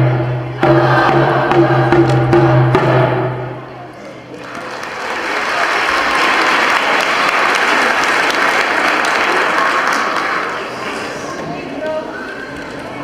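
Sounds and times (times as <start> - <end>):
audience applauding: 4.0 - 11.3.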